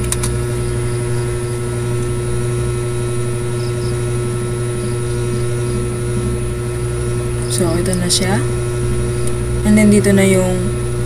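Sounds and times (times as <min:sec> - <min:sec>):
sharp click: 0:00.0 - 0:00.4
low background hum with tone: 0:00.0 - 0:11.0.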